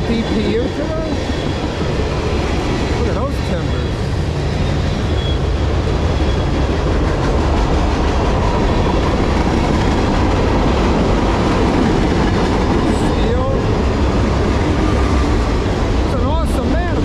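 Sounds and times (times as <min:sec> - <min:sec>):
steel wheels rumbling on rail: 0:00.0 - 0:17.0
faint thin squeal: 0:04.7 - 0:05.5.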